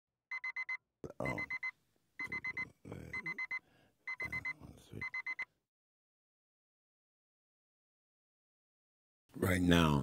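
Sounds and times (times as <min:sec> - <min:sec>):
digital alarm clock beeping: 0:00.3 - 0:05.5.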